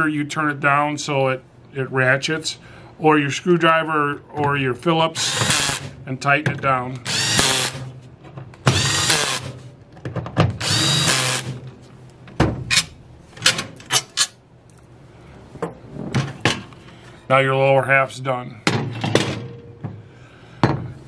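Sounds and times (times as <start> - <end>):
cordless drill driving screws: 5.2 - 5.9, 7.0 - 7.9, 8.7 - 9.6, 10.6 - 11.6.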